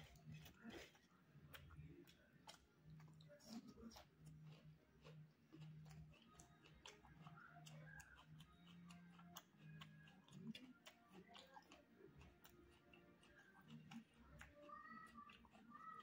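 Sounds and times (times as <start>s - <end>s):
chewing with wet mouth clicks: 0.0s - 16.0s.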